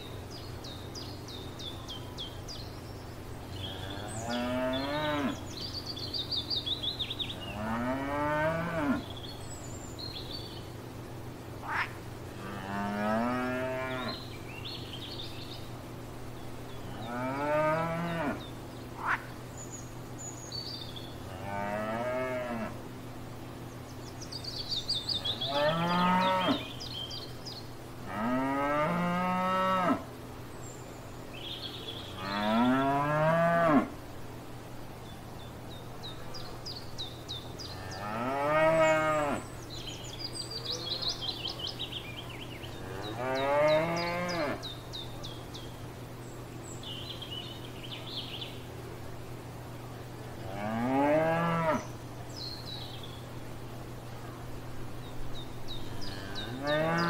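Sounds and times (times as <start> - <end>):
cows mooing: 3.7 - 5.4, 7.5 - 9.0, 11.7 - 14.2, 17.0 - 18.4, 21.3 - 22.8, 25.4 - 26.6, 32.2 - 33.9, 37.8 - 39.4, 42.8 - 44.6, 50.5 - 51.9, 56.0 - 57.0.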